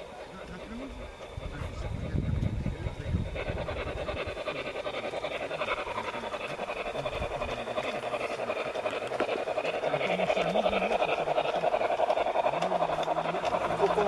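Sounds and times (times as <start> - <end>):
model steam locomotive chuffing: 0.0 - 14.0.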